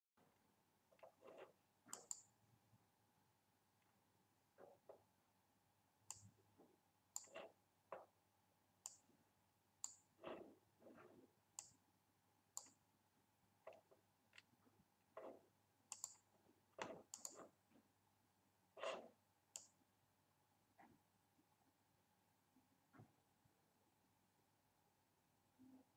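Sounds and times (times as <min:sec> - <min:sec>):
faint computer mouse clicks: 0:01.4 - 0:02.3, 0:06.1 - 0:06.3, 0:12.6 - 0:12.8, 0:15.9 - 0:17.5, 0:19.6 - 0:19.8.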